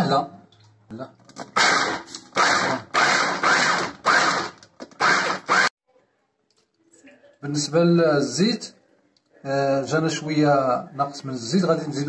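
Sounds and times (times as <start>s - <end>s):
electric food chopper grinding: 1.4s - 5.7s.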